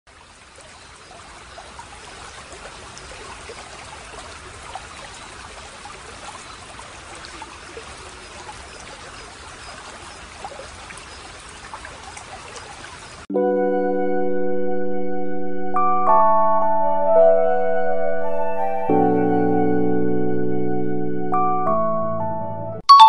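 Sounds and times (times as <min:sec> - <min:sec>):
stream water over rocks: 0:00.1 - 0:13.3.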